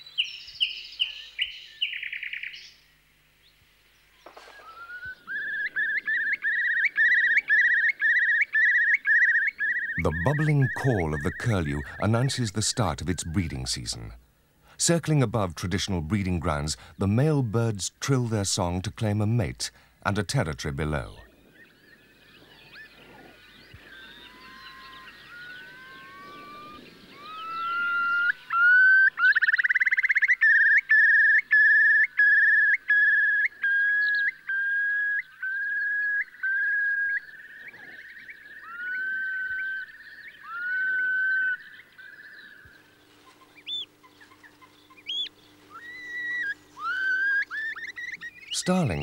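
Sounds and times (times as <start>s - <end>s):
curlew bubbling trill song: 4.6s - 14.2s, 20.9s - 42.7s, 43.6s - 49.0s.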